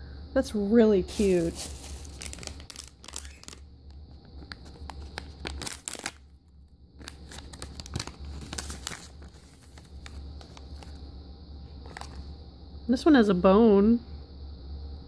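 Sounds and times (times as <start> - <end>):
foil bag crinkling and tearing: 1.1 - 3.7, 4.4 - 6.4, 7.0 - 11.0, 11.9 - 12.3.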